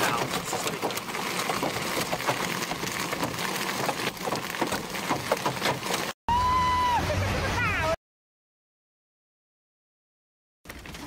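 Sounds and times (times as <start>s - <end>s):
hailstones pelting a car: 0.0s - 6.2s.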